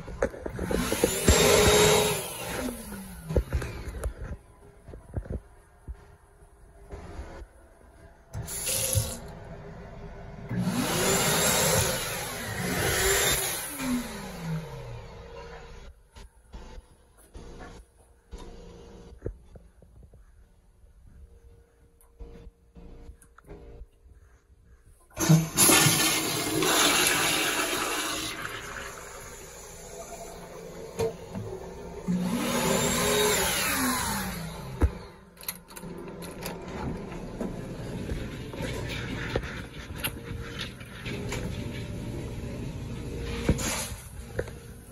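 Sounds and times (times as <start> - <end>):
toilet flushing with loud whoosh: 25.2 - 34.8.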